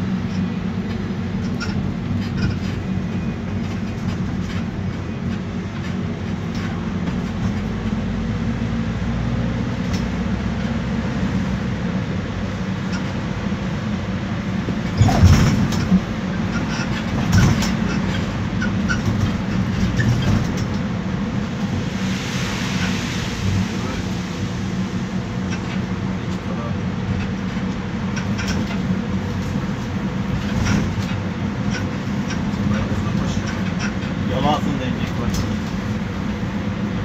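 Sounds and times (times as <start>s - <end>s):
diesel engine and road noise: 0.0s - 37.0s
suspension squeaks: 1.4s - 7.8s, 14.7s - 20.9s, 25.4s - 35.6s.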